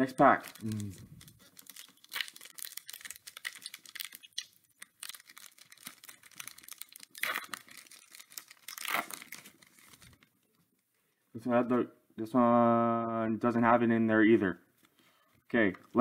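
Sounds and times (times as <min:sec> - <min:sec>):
wrapper crinkling and tearing: 0:00.0 - 0:10.3.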